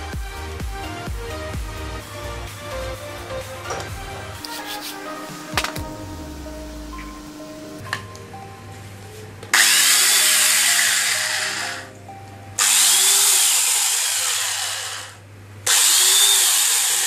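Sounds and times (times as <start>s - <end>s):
electric chainsaw running: 9.6s - 11.9s, 12.6s - 17.0s.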